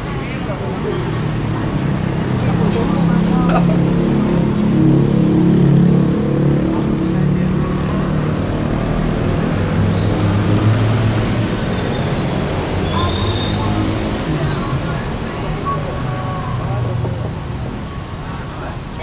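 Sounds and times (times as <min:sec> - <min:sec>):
engine running: 0:01.8 - 0:09.7.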